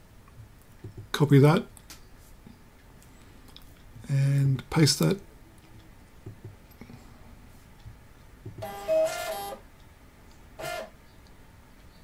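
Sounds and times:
receipt printer paper feed whir: 8.6s - 9.6s, 10.6s - 10.9s.

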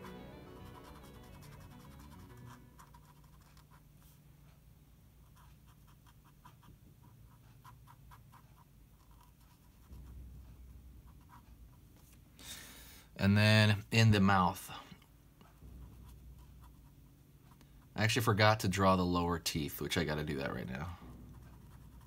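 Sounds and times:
brush pen strokes on paper: 0.0s - 4.6s, 15.4s - 18.0s, 21.0s - 22.0s.

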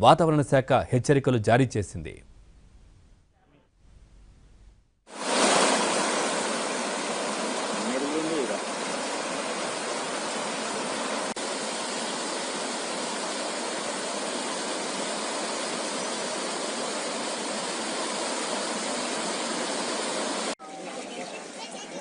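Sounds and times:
floodwater rushing: 5.1s - 20.6s.

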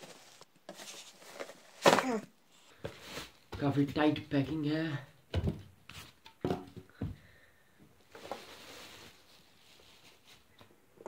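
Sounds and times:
plastic bag rustling: 0.0s - 3.5s, 8.1s - 10.5s.

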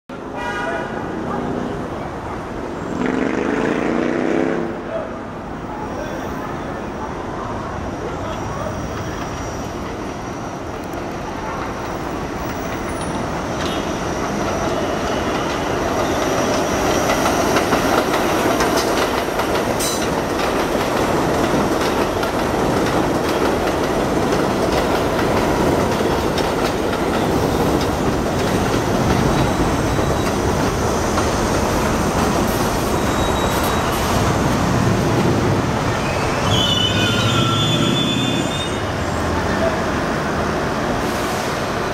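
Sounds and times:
subway train wheels on rails: 0.1s - 41.9s
high wheel squeal: 8.1s - 10.7s, 32.4s - 34.4s, 35.9s - 39.7s.

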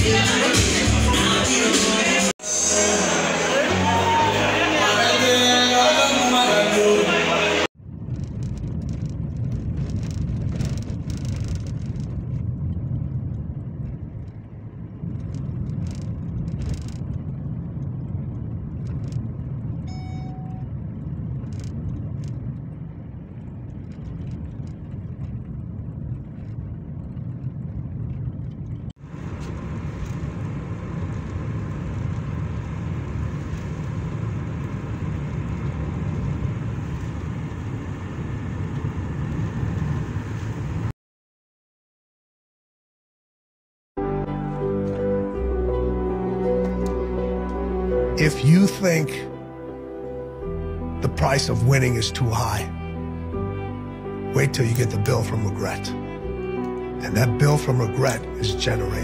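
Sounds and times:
engine and tyre rumble: 0.0s - 40.9s, 44.0s - 59.0s
wet road tyre noise: 0.0s - 40.9s, 44.1s - 59.0s
rain on windscreen: 7.8s - 40.9s
brief tone: 19.8s - 20.8s.

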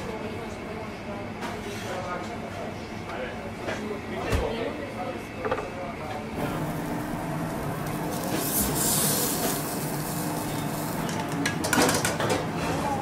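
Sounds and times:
steady low hum: 4.8s - 11.5s
fish sizzling on griddle: 6.4s - 11.1s.

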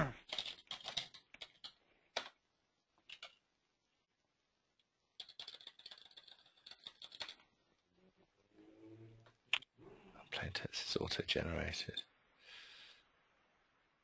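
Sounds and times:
keyboard typing: 0.2s - 2.4s, 5.2s - 7.5s.

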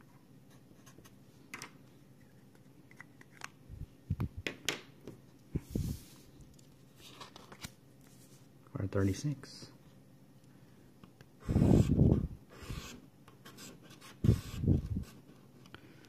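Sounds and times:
paper rustling: 5.8s - 8.4s.

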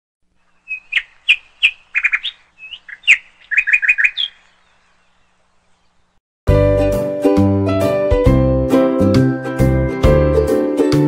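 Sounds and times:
bird chirping: 0.3s - 6.2s.

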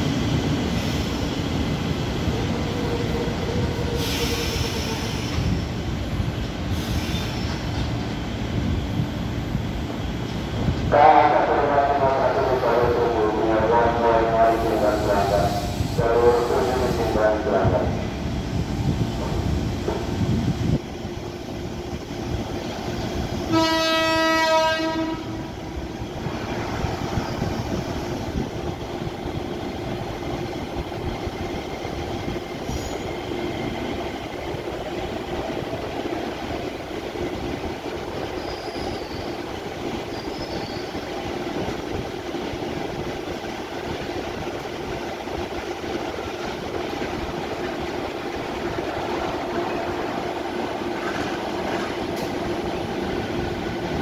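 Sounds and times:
train hum and rumble: 0.0s - 54.0s
train horn blast: 23.5s - 25.5s.

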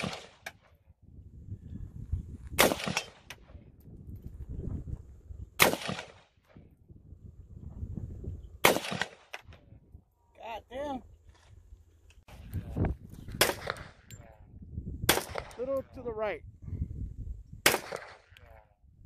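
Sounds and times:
rifle shots with echo: 0.0s - 0.7s, 2.6s - 3.6s, 5.6s - 6.4s, 8.6s - 9.6s, 13.3s - 14.1s, 15.1s - 15.7s, 17.6s - 18.4s.

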